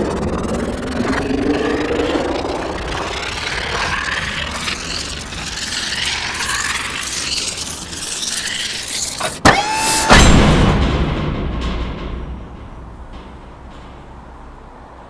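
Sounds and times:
loud rush of noise: 0.0s - 8.1s
shifting noise texture: 0.0s - 9.2s.

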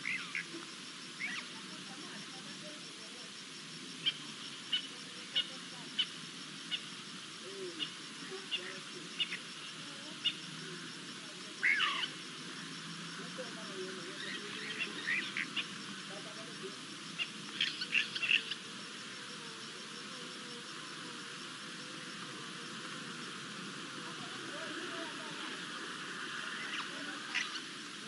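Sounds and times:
wild birds calling: 0.0s - 2.8s, 3.8s - 28.0s
steady hiss: 0.0s - 28.0s.

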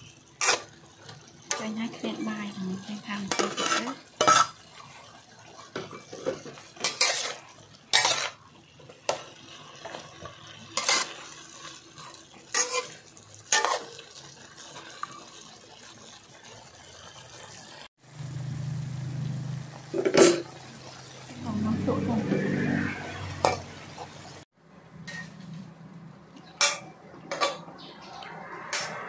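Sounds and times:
faint sizzle: 0.0s - 24.4s
spatula scraping metal wok: 0.3s - 15.2s, 21.4s - 24.2s, 25.0s - 25.7s, 26.6s - 29.0s.

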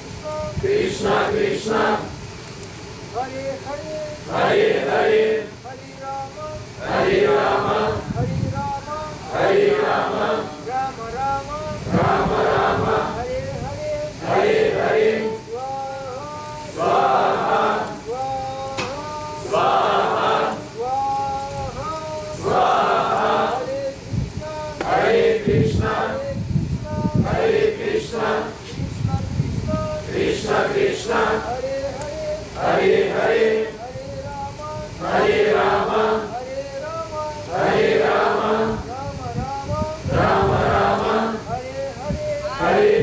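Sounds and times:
man chanting melodic phrase: 0.2s - 0.7s, 3.1s - 4.3s, 5.4s - 6.8s, 8.2s - 9.4s, 10.5s - 12.3s, 17.9s - 19.6s, 20.6s - 22.6s, 23.5s - 24.9s, 26.0s - 27.4s, 28.6s - 30.2s, 33.6s - 35.2s, 36.0s - 37.6s
group of voices chanting: 0.6s - 2.2s, 4.3s - 5.6s, 6.8s - 8.1s, 9.2s - 10.7s, 11.8s - 13.2s, 14.2s - 15.6s, 16.7s - 18.2s, 18.8s - 20.8s, 22.3s - 23.8s, 24.6s - 26.2s, 26.8s - 28.7s, 30.0s - 33.8s, 35.0s - 36.4s, 37.4s - 38.9s, 40.0s - 41.5s, 42.4s - 43.0s.

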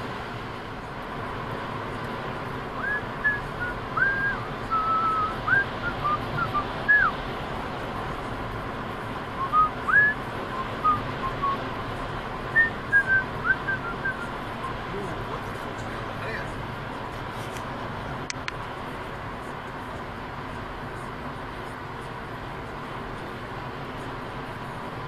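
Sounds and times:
car road noise: 0.0s - 25.0s
high whistle-like notes: 2.8s - 7.1s.

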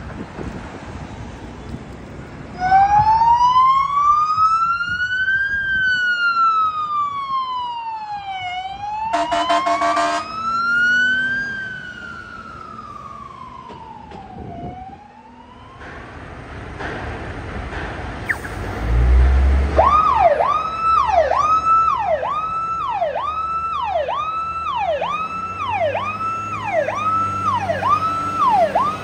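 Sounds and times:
fire engine siren wailing: 2.6s - 16.4s, 18.3s - 29.0s
harsh buzzing horn blast: 9.1s - 10.3s.

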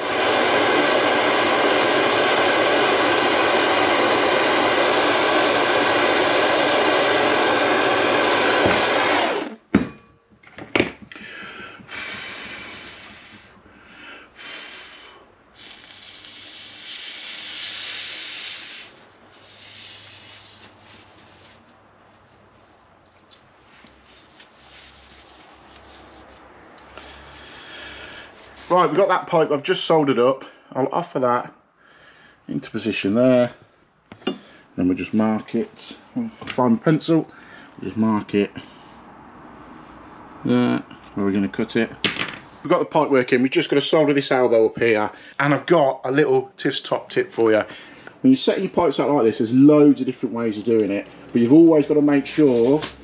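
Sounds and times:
blowtorch flame roaring: 0.0s - 9.6s, 11.1s - 21.5s
rubbing and handling sounds: 18.9s - 27.7s, 28.3s - 28.9s, 39.7s - 41.2s.

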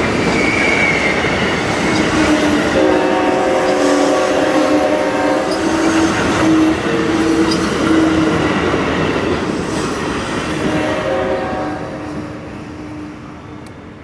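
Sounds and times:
train wheels squealing: 0.0s - 2.7s, 5.2s - 8.5s
train cars rolling on rails: 0.0s - 14.0s.

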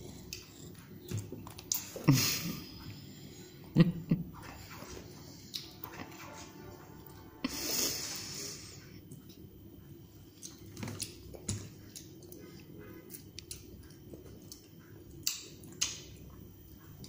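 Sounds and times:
toddler chewing with lip smacks: 10.4s - 17.0s.

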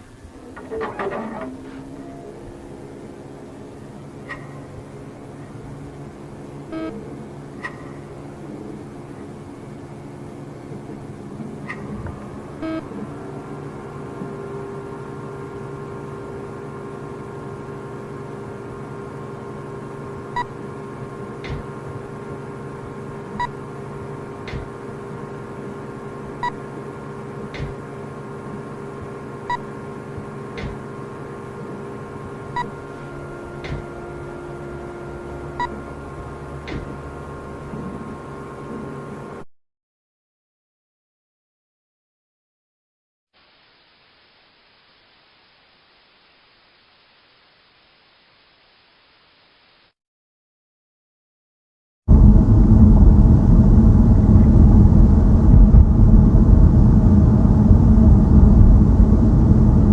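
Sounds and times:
electronic drone: 0.0s - 10.6s, 11.6s - 25.4s, 31.0s - 38.6s, 52.1s - 59.9s
short beep: 12.6s - 12.9s.

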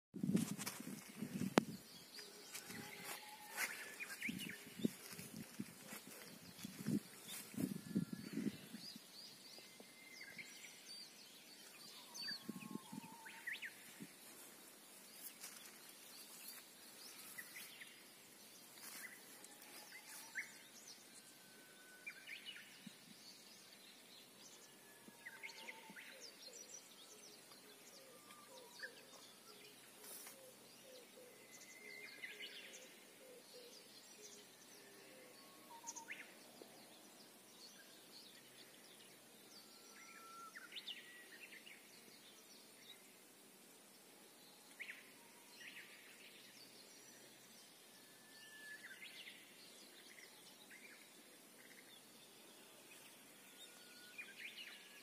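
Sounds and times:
low steady hiss: 0.2s - 55.0s.

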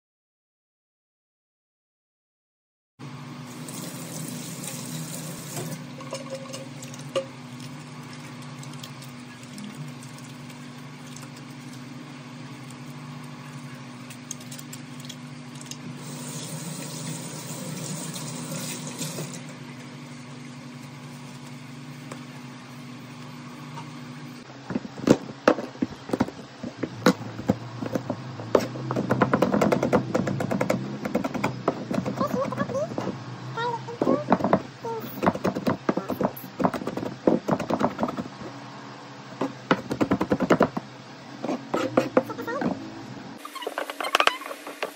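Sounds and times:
faucet running into metal sink: 3.6s - 7.3s, 16.0s - 19.4s
sharp knocks and clatters: 24.7s - 33.2s.

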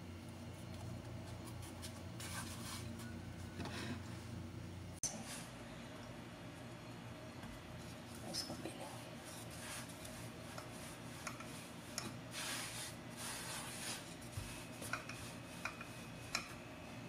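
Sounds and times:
rolling pin rubbing swishes: 9.2s - 16.6s.

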